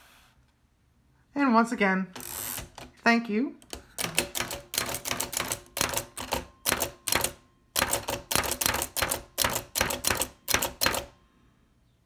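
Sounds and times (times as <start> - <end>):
typewriter keystroke clicks: 3.7 - 11.1.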